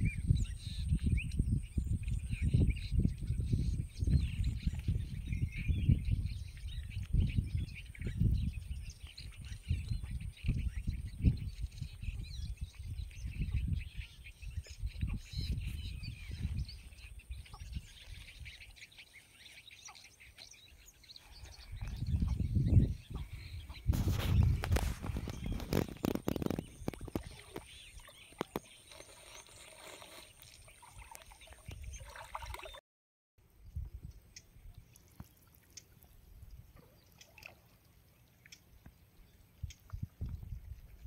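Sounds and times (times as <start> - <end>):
wind rumbling on microphone: 0.0 - 18.8, 20.6 - 30.2, 33.5 - 35.3, 39.2 - 41.0
birds chirping faintly: 0.0 - 32.8.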